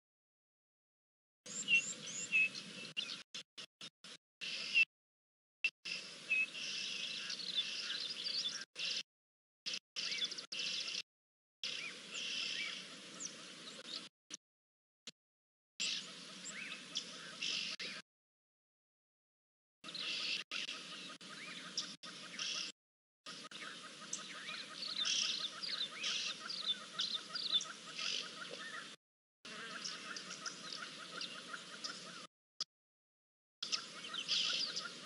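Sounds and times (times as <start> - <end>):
birds chirping and calling: 1.5 - 3.2, 4.4 - 4.8, 5.9 - 9.0, 9.7 - 11.0, 11.6 - 14.1, 15.8 - 18.0, 19.8 - 22.7, 23.3 - 32.3, 33.6 - 35.0
outdoor background noise: 5.8 - 9.0, 11.6 - 14.1, 15.8 - 18.0, 19.8 - 22.7, 23.3 - 32.3, 33.6 - 35.0.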